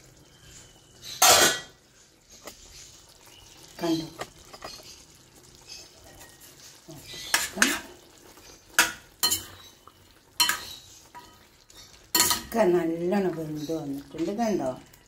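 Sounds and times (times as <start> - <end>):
metal spatula scraping pan: 1.0 - 1.8, 8.6 - 9.7
spatula clanking against pan: 7.2 - 7.9, 8.7 - 9.6, 10.4 - 11.4, 12.1 - 12.6.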